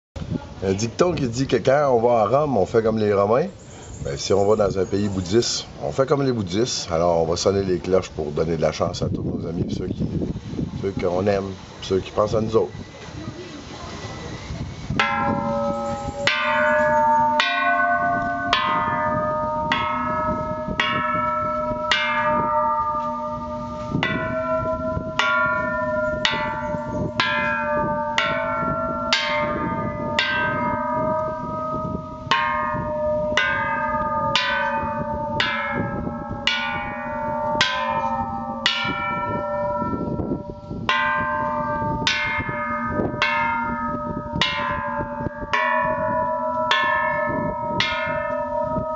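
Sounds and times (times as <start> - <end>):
metal bells struck with a stick: 15.0 - 48.9.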